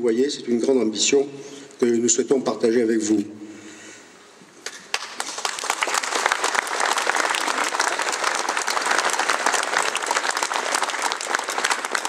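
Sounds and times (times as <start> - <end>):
crowd applauding: 4.7 - 12.0.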